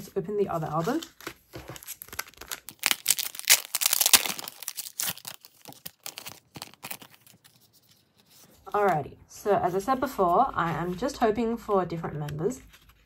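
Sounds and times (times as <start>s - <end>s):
plastic wrapping tearing and crinkling: 0.7s - 7.9s.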